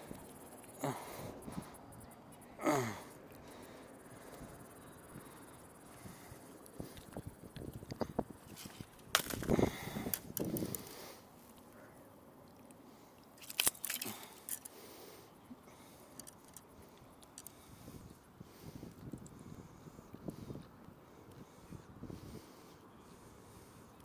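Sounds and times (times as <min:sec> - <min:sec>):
fish handling rustling and knocking: 0:08.5 - 0:10.7, 0:13.4 - 0:14.7.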